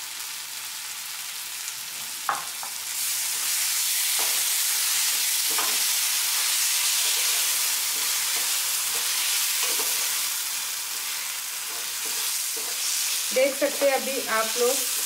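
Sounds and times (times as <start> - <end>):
vegetables sizzling in a frying pan: 0.0 - 15.0
spatula scraping a pan: 4.1 - 15.0.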